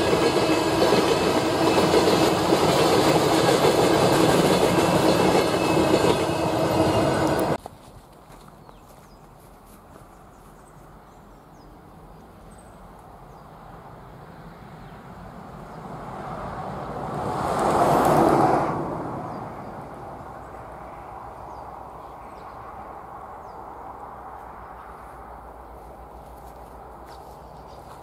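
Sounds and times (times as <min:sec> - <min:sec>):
vehicle passing by: 0:14.2 - 0:27.8.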